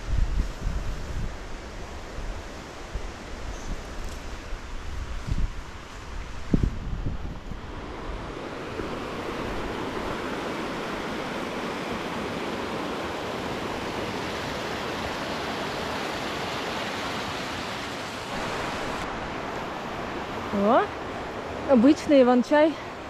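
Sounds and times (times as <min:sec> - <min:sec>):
river rushing: 0:07.2 - 0:23.0.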